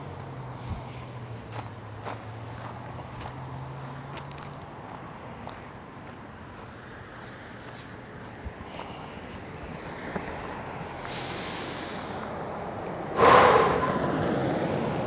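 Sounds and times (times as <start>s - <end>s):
man breathing out: 13.2s - 14.2s
man snorting: 13.2s - 14.2s.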